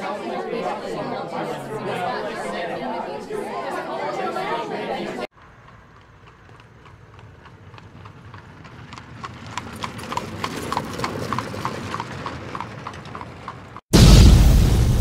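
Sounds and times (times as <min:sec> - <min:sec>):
horse hooves clip-clopping: 0:05.3 - 0:13.8.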